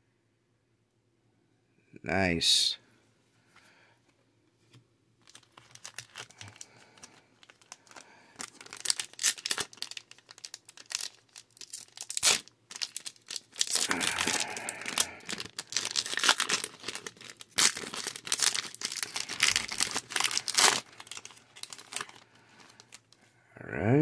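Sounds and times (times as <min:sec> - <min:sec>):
foil wrapper crinkling: 0:05.2 - 0:23.2.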